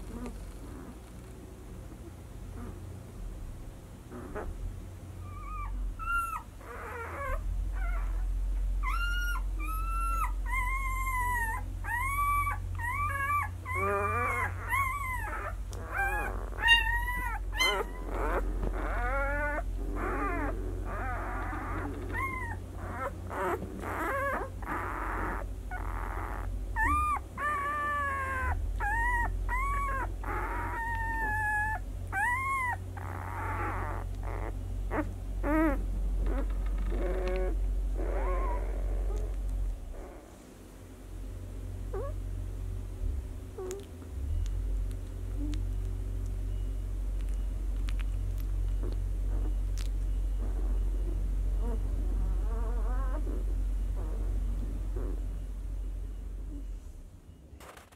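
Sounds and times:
steady low hum: 0.0s - 57.9s
puppies squeaking and whimpering: 5.2s - 40.3s, 41.9s - 42.2s, 43.6s - 44.6s, 45.3s - 45.8s, 46.5s - 55.5s.

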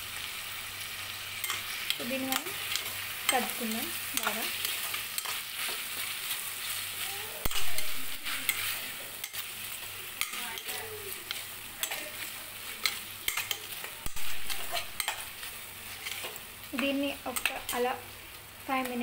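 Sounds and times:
vegetables sizzling in oil: 0.0s - 19.0s
metal spatula scraping pan: 7.5s - 9.5s, 10.2s - 17.9s.

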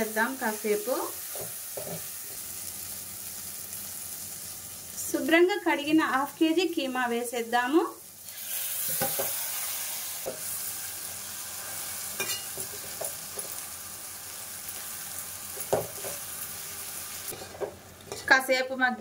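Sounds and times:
meat sizzling in hot oil: 0.0s - 18.2s
metal spatula scraping and clinking: 12.2s - 12.6s.

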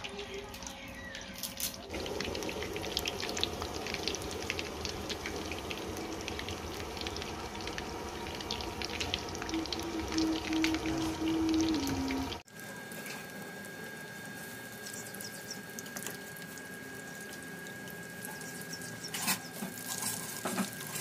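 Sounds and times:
food deep-frying in oil: 0.0s - 21.0s
held musical tone: 9.1s - 12.4s.

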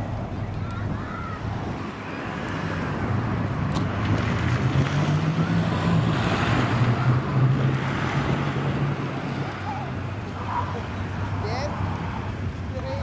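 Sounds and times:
car engine revving: 3.8s - 12.2s.

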